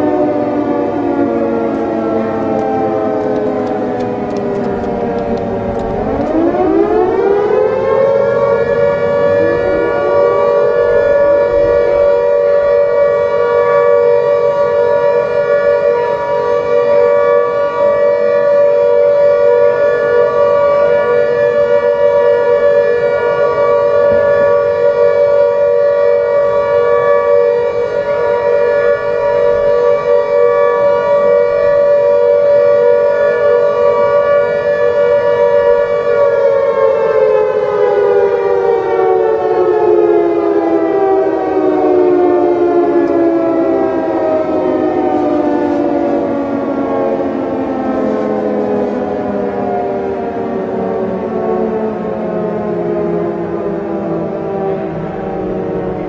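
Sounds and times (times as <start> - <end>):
siren wailing: 0.0 - 56.0.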